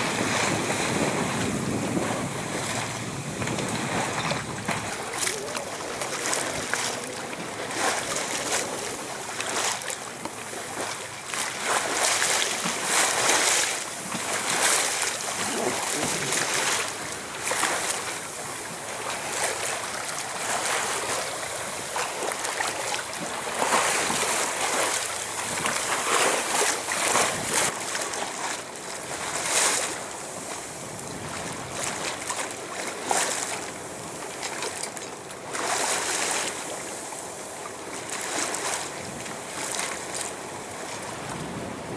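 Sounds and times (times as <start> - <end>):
wind gusting over microphone: 0.0 - 9.2
water splashing along hull: 0.0 - 41.9.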